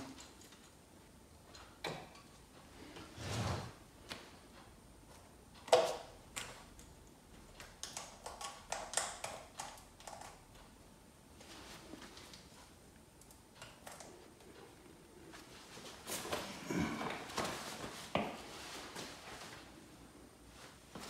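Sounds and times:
wires and clips clicking: 5.1s - 10.8s.

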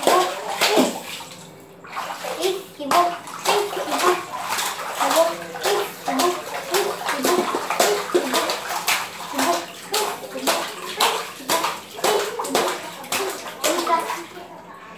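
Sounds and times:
water splashing on tiled floor: 0.0s - 14.5s
child vocalising: 2.8s - 4.4s.

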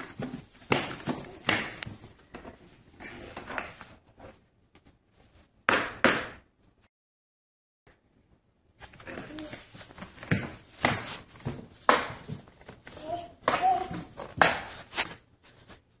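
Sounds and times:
knocks and slaps on wooden floor: 0.1s - 1.9s.

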